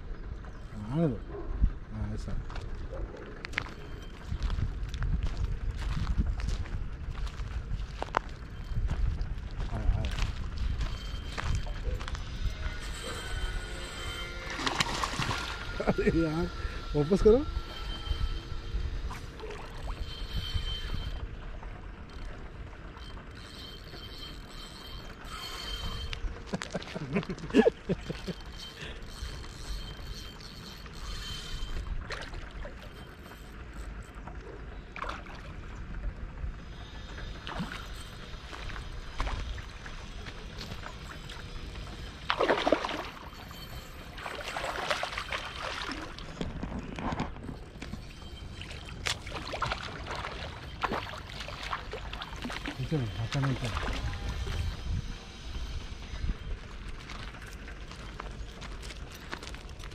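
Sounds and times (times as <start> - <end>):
fishing reel whirring: 7.4 - 34.9, 36.0 - 59.9
fish splashing in water: 42.3 - 43.3, 44.2 - 46.3, 48.6 - 52.8.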